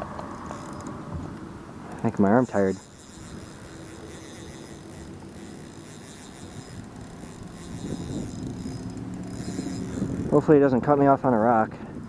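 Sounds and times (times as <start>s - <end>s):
outdoor background noise: 0.0s - 12.0s.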